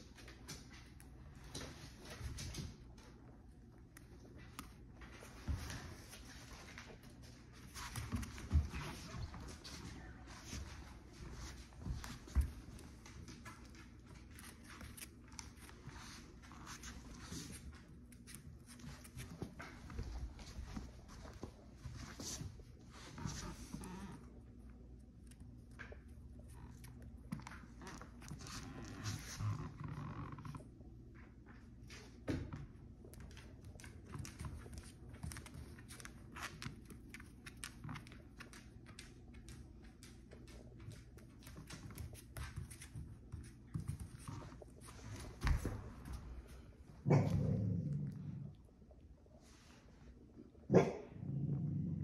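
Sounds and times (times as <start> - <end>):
puppy claws ticking on wood floor: 32.3 - 46.2.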